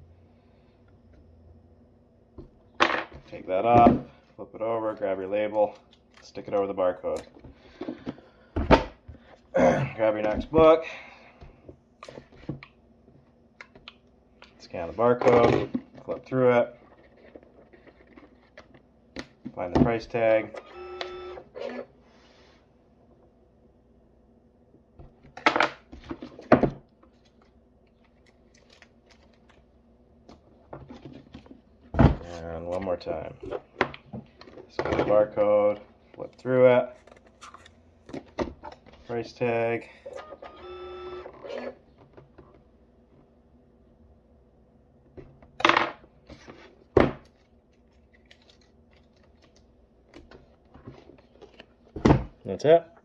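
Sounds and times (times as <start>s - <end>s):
faint steady hum: 0.0s - 53.0s
paper rustling: 47.4s - 49.7s.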